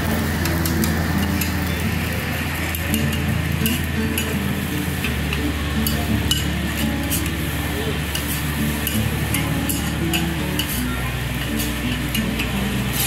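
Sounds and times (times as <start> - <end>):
rice sizzling: 0.0 - 13.0
metal spatulas scraping on griddle: 3.0 - 4.3, 5.8 - 7.3, 8.1 - 13.0.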